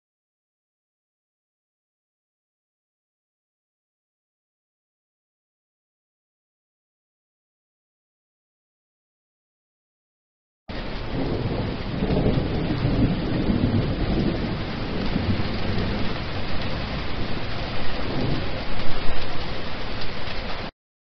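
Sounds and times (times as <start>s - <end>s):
heavy rain pouring: 10.7s - 20.7s.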